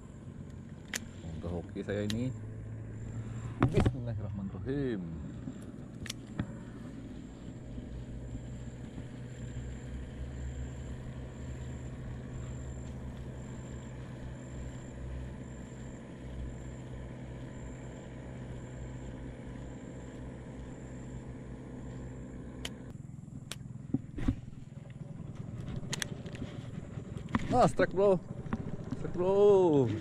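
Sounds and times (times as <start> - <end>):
boat engine running: 0.0 - 30.0
sharp clicks: 0.4 - 2.3, 5.6 - 6.6, 22.6 - 23.7, 24.8 - 26.4.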